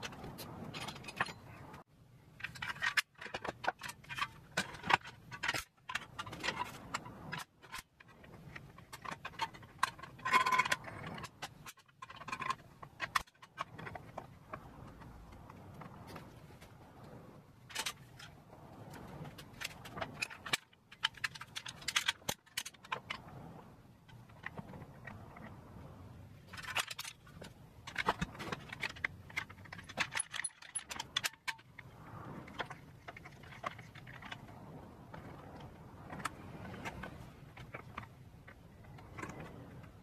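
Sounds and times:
metal clamps clicking and rattling: 0:00.0 - 0:01.8, 0:02.4 - 0:16.4, 0:17.7 - 0:34.8.

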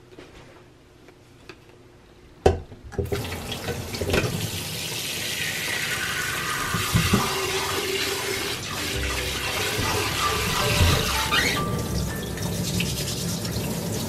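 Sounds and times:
tap running into steel sink: 0:06.7 - 0:07.5.

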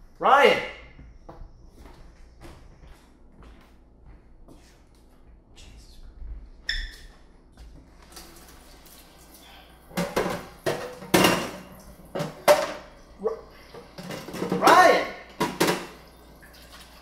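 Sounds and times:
dishes clattering in metal sink: 0:09.9 - 0:16.9.

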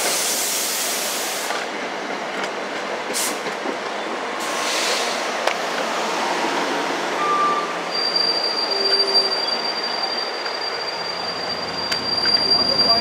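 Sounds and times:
train rolling past: 0:00.0 - 0:13.0
high thin squeal: 0:07.2 - 0:13.0.

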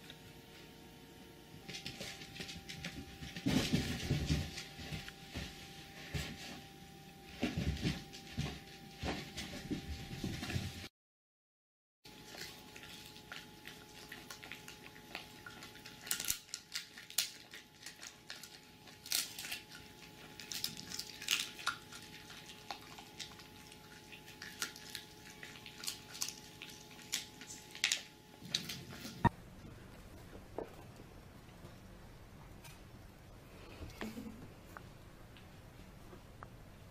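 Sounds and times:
faint steady hum: 0:00.0 - 0:10.9, 0:12.1 - 0:36.9
dog gnawing on bone: 0:12.1 - 0:29.3.

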